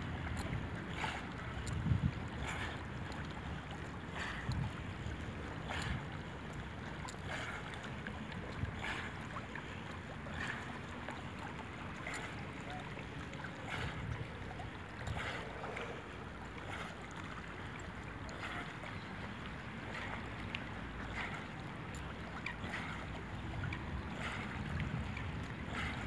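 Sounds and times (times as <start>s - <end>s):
wind rumble on microphone: 0.0s - 3.0s, 4.2s - 5.2s, 23.2s - 26.0s
water lapping and splashing: 0.0s - 26.0s.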